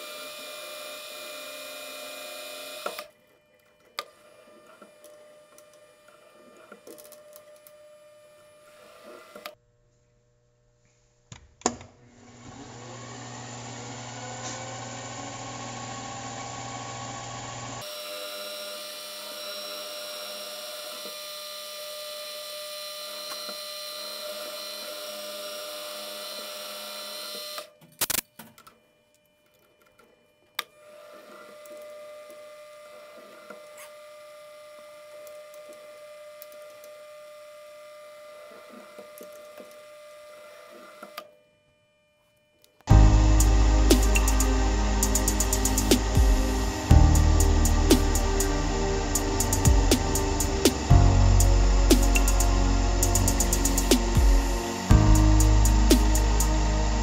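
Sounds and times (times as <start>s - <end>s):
drill boring into aluminium: 0.0s - 3.1s, 13.2s - 27.7s
milling machine spindle running: 43.1s - 57.0s.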